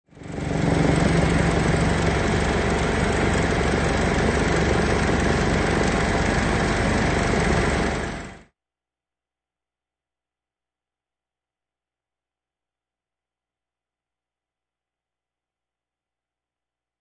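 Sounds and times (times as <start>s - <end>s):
helicopter engine and rotor drone: 0.1s - 8.5s.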